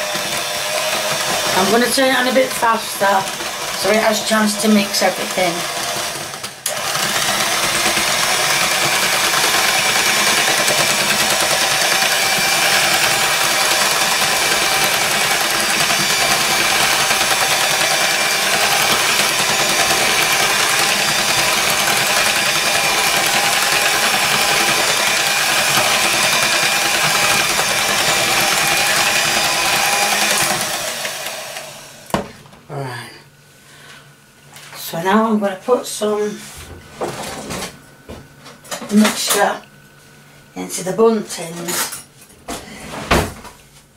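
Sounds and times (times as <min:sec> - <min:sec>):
electric hand mixer whirring: 0:00.0 - 0:32.3.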